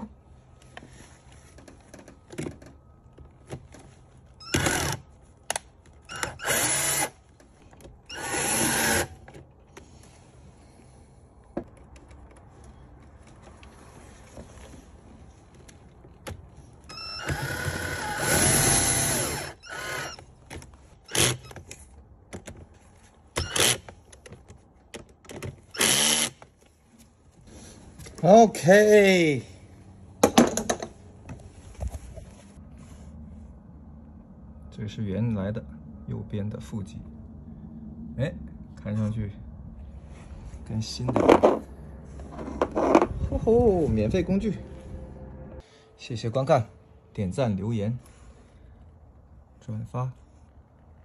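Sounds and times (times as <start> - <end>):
cordless drill whirring: 8.1 - 9.1, 16.9 - 20.2.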